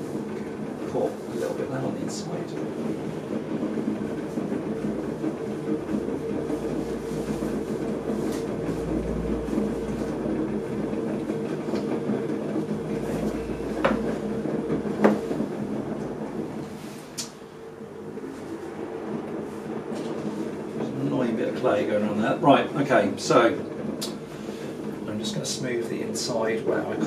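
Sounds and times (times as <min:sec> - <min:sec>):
wooden stick working clay: 0:00.0 - 0:17.4
potter's wheel motor hum: 0:00.0 - 0:27.0.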